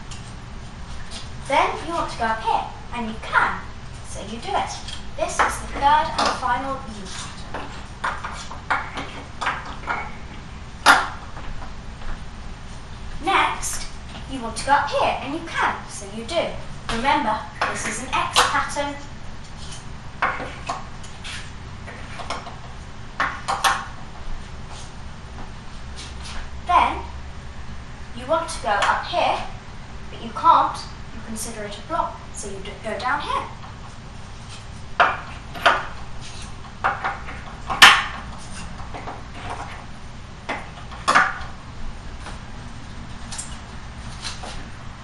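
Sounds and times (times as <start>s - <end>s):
low steady hum: 0.0s - 45.0s
cards clacking on pegboard: 4.9s - 6.4s, 7.1s - 10.2s, 10.8s - 11.2s, 23.2s - 23.9s
cards clicking against a pegboard: 23.2s - 23.9s.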